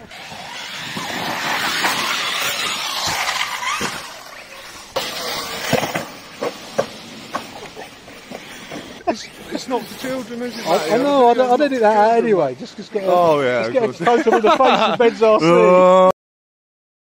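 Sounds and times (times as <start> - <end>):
rc car tyres spinning on loose ground: 0.0 - 13.6.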